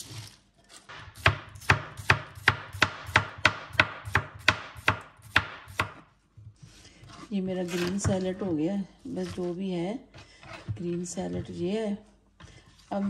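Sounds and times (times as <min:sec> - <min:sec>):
knife chopping vegetables: 0:00.9 - 0:08.4.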